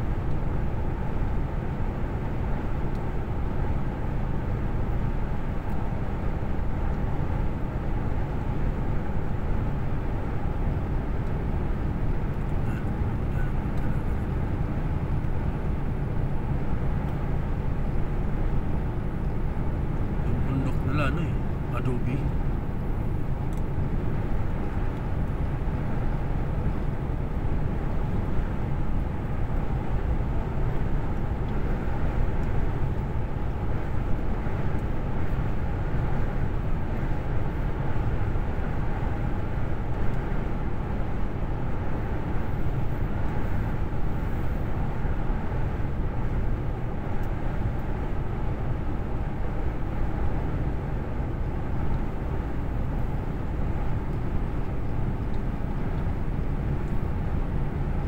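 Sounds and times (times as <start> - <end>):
lorry engine and tyre rumble: 0.0 - 58.0.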